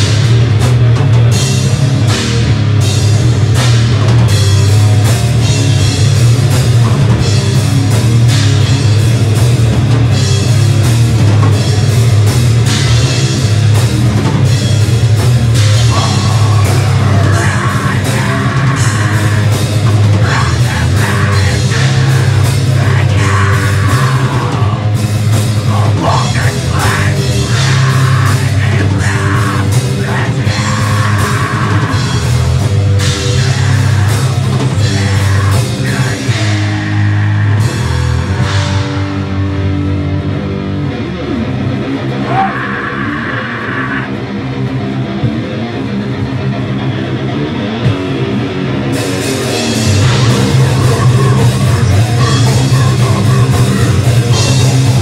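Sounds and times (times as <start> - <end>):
heavy metal band playing: 0.0 - 55.0
person singing: 15.8 - 39.4, 49.6 - 55.0.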